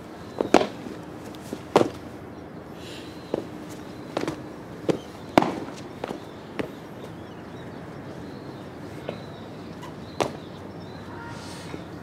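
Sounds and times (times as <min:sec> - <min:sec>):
body percussion slaps and stamps: 0:10.2 - 0:10.5.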